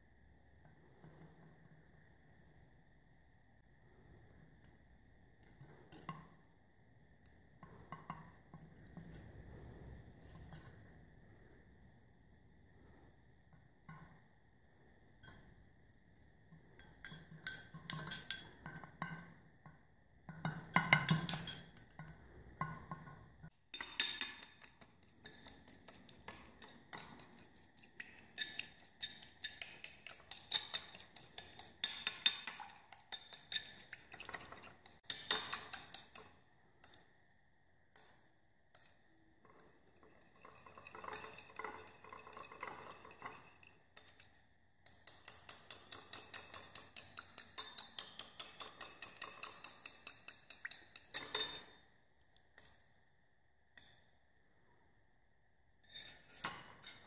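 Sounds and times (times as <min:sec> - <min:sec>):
metal spoon stirring in ceramic bowl: 0:07.3 - 0:11.0, 0:16.5 - 0:37.2, 0:37.9 - 0:51.9, 0:55.8 - 0:57.0.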